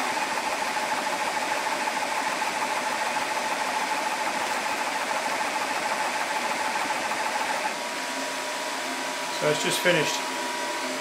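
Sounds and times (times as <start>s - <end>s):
air compressor whining: 0.0s - 8.0s.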